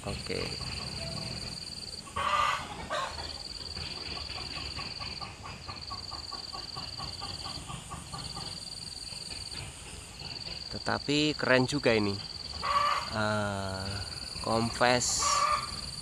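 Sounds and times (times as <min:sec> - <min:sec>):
hen clucking: 0:00.0 - 0:09.5, 0:12.5 - 0:16.0.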